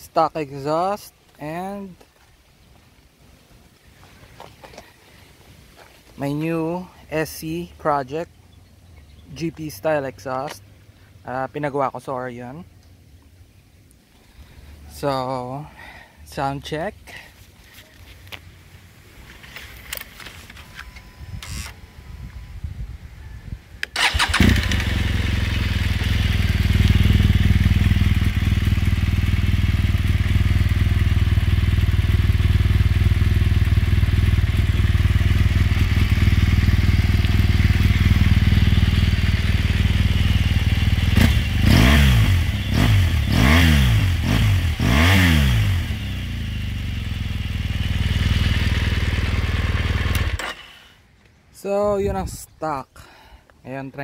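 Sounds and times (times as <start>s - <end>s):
motorcycle engine starting and idling: 23.8s - 51.2s
motorcycle engine revving: 23.9s - 51.0s.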